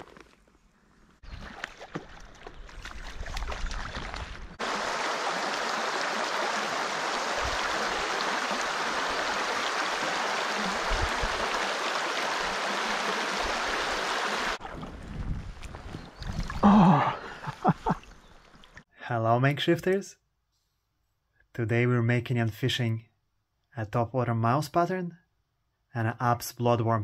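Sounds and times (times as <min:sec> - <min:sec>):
river water rushing over stones: 0:04.6 - 0:14.6.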